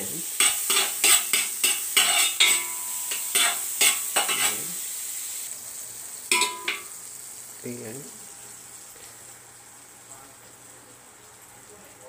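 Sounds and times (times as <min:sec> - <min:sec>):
butter sizzling: 0:00.0 - 0:12.0
utensil scraping a metal wok: 0:00.2 - 0:05.0.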